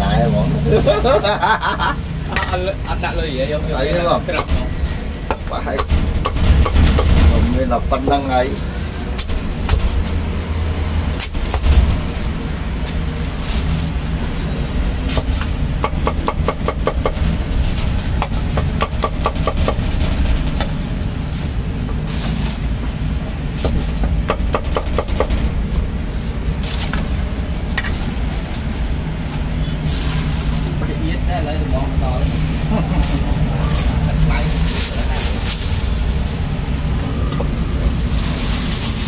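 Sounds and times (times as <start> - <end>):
low background rumble: 0.0 - 39.0
cleaver chopping on wooden block: 15.8 - 17.2, 23.6 - 25.3.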